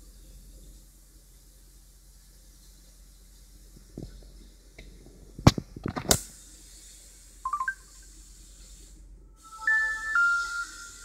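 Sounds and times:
electronic ringtone melody: 0:07.5 - 0:07.9, 0:09.4 - 0:11.0
short electronic chirp: 0:07.5 - 0:08.0, 0:09.4 - 0:11.0.

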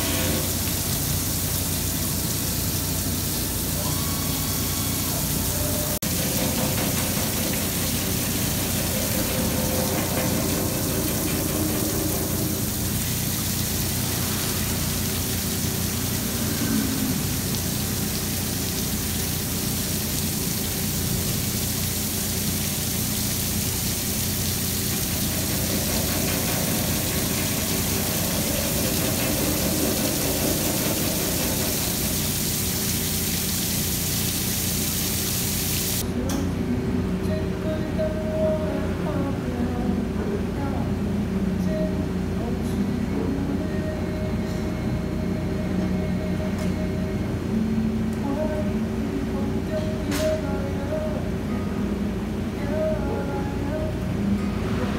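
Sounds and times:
hiss of coolant spray: 0:00.0 - 0:36.0
milling machine cutting metal: 0:06.0 - 0:12.8.

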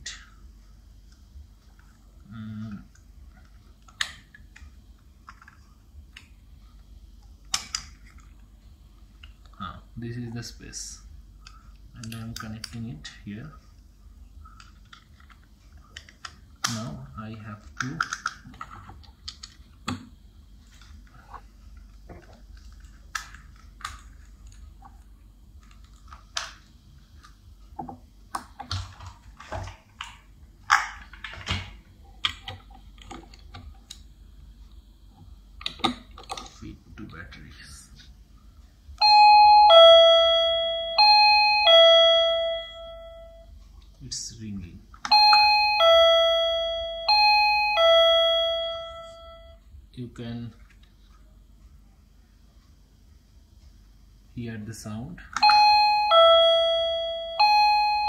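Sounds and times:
sharp plastic snaps: 0:07.5 - 0:08.2.

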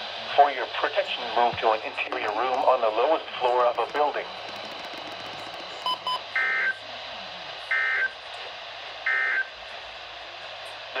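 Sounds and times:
digital data tone bursts: 0:05.8 - 0:06.8
weather radio beeps: 0:05.8 - 0:06.8, 0:07.7 - 0:08.1, 0:09.1 - 0:09.5.

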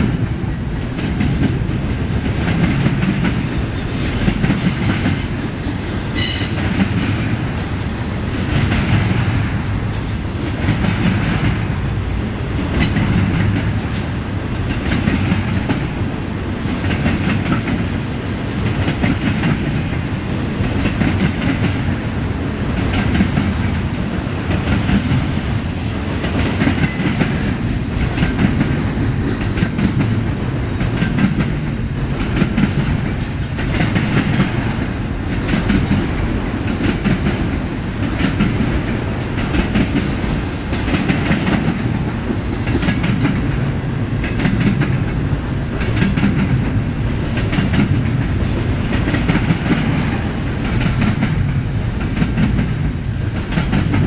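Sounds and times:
freight train rolling past: 0:00.0 - 0:54.0
wheels clickety-clack: 0:00.9 - 0:07.6, 0:16.7 - 0:22.0, 0:22.8 - 0:54.0
high wheel squeal: 0:03.9 - 0:05.4.

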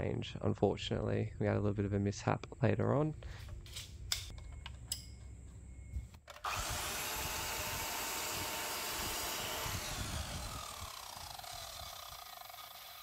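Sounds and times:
saw blade winding down whine: 0:06.3 - 0:13.0
mitre saw cutting wood: 0:06.4 - 0:13.0.

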